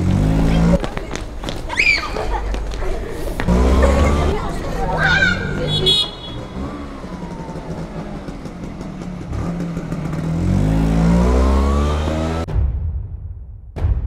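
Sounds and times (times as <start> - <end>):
motor scooter engine accelerating: 0.0 - 1.2, 3.3 - 12.5.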